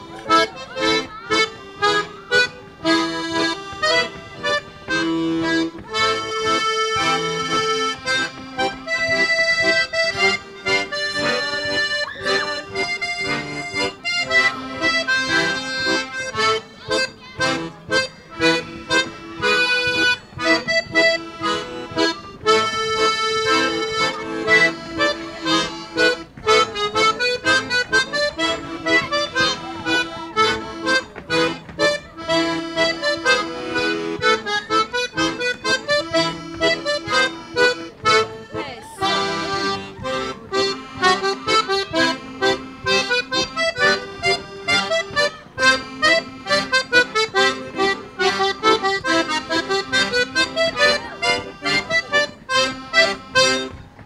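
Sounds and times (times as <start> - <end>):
accordion ensemble playing: 0.0 - 54.0.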